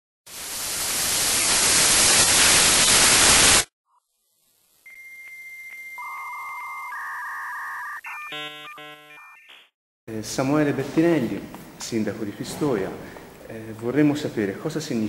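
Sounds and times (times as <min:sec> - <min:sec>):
loud static hiss: 0:00.3 - 0:04.9.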